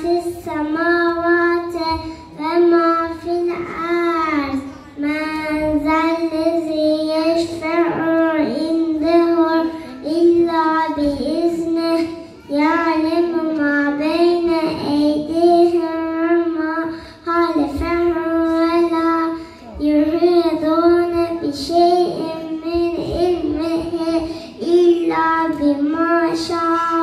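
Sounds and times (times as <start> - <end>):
child singing into microphone: 0.0 - 27.0
child breathing: 9.6 - 10.1, 12.1 - 12.5, 16.8 - 17.3, 19.3 - 19.8, 24.2 - 24.6.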